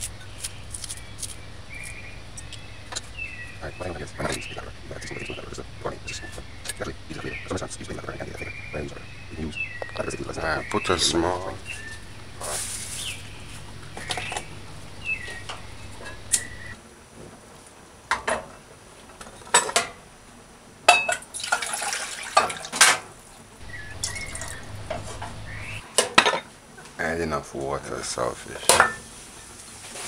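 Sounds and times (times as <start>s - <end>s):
water pouring into metal pot: 21.3s - 22.8s.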